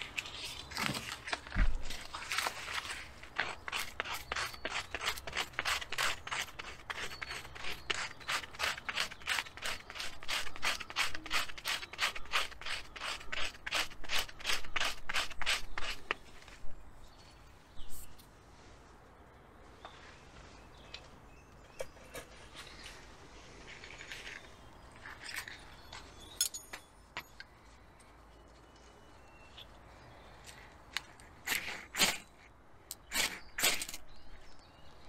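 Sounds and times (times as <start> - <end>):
hand saw cutting wood: 3.3 - 16.0, 31.4 - 32.3, 33.0 - 34.0.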